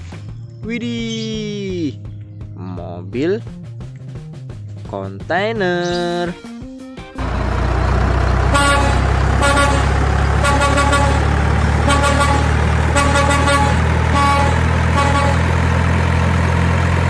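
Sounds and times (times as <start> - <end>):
diesel truck engine droning: 7.2 - 17.0
air horn short toots: 8.5 - 15.5.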